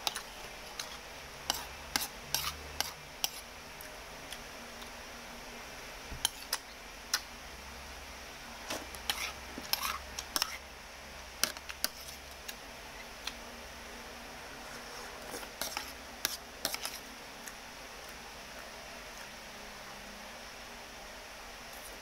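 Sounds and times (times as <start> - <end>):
metal spoon scraping ceramic plate: 0.8 - 3.4.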